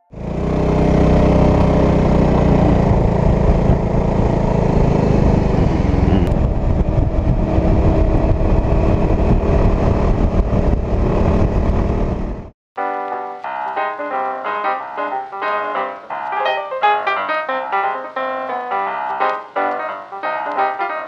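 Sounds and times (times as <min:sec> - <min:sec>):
motor scooter engine running: 0:00.1 - 0:12.5
road noise: 0:00.1 - 0:12.5
heavy wind noise: 0:02.8 - 0:12.5.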